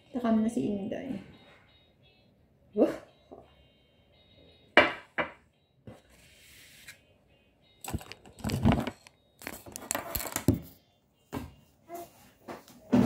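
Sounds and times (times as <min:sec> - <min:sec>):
plastic packaging rustling: 0:07.8 - 0:10.7.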